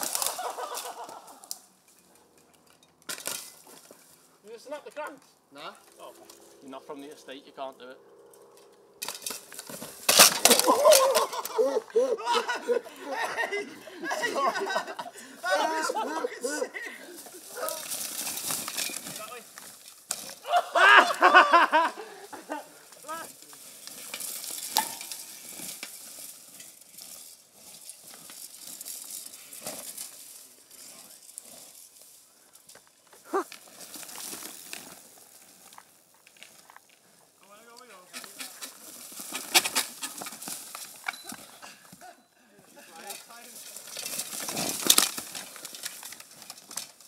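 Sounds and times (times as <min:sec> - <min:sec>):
people laughing: 0:00.0 - 0:01.5, 0:10.4 - 0:17.8, 0:20.4 - 0:22.9
bike crashing onto dirt: 0:00.0 - 0:01.7, 0:02.8 - 0:05.2, 0:08.7 - 0:11.6, 0:17.2 - 0:42.1, 0:42.7 - 0:47.0
people shouting: 0:10.5 - 0:12.8, 0:15.2 - 0:16.8, 0:20.4 - 0:21.6.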